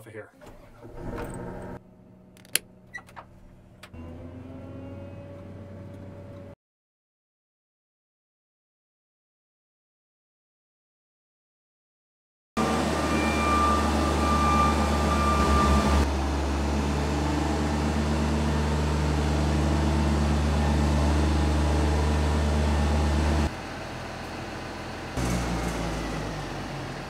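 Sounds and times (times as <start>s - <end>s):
diesel engine droning: 0.6s - 6.6s, 12.6s - 27.0s.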